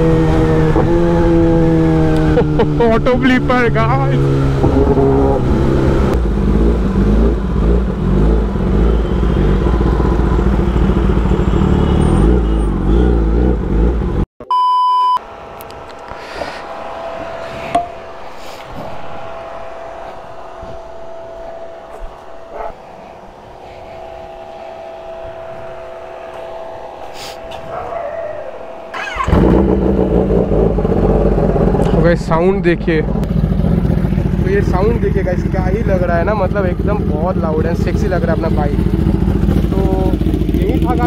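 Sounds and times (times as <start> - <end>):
exhaust blips on downshifts: 0.0 - 14.2, 15.0 - 41.0
motorcycle engine revving: 0.0 - 14.3, 15.2 - 41.0
short beep: 14.4 - 15.2, 23.5 - 30.7.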